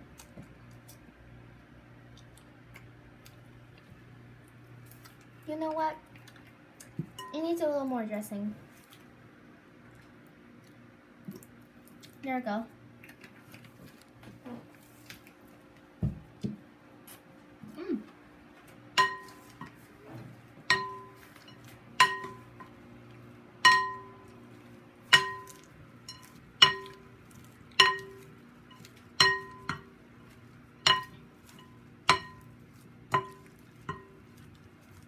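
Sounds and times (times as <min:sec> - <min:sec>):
wooden spoons knocking glass bowl: 0:19.0 - 0:19.7, 0:20.7 - 0:22.7, 0:23.6 - 0:24.3, 0:25.1 - 0:27.1, 0:27.8 - 0:29.9, 0:30.8 - 0:34.2.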